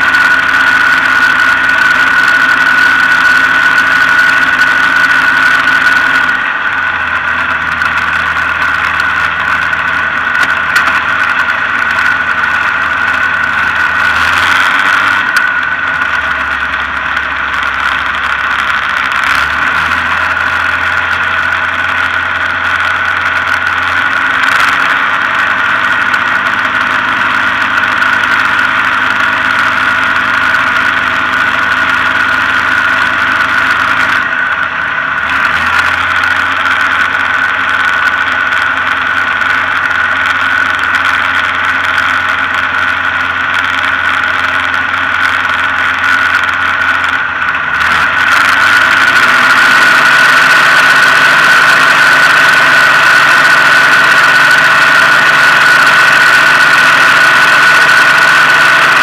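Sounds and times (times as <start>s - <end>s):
light aircraft engine and propeller: 0.0s - 59.0s
steady high whine: 0.0s - 59.0s.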